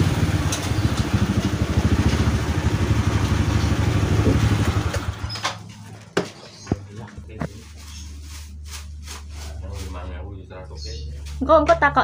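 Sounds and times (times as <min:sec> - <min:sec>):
small motorcycle engine idling: 0:00.0 - 0:06.8.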